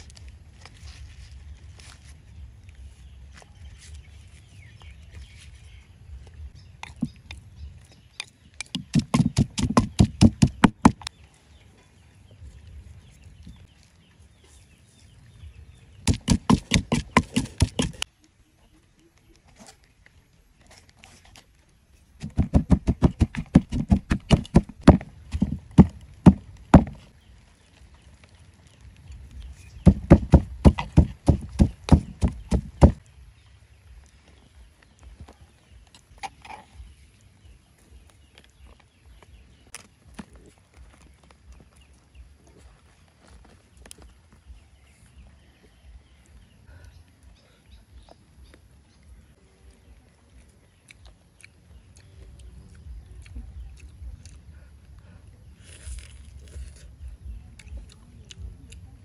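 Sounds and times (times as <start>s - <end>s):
wooden pestle pounding in mortar: 8.6s - 11.0s, 16.1s - 18.0s, 22.2s - 27.0s, 29.8s - 33.0s.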